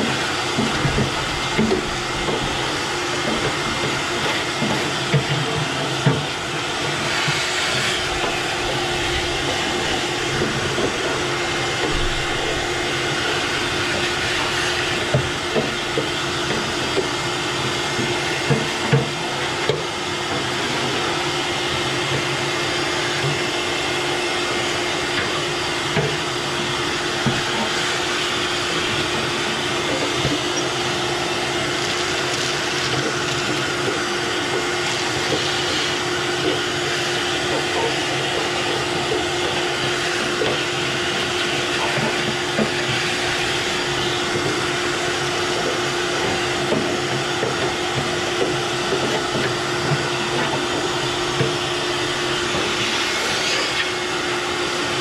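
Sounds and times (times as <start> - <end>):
small knocks and rattles in hose: 0.0 - 54.3
shop vac running: 0.0 - 55.0.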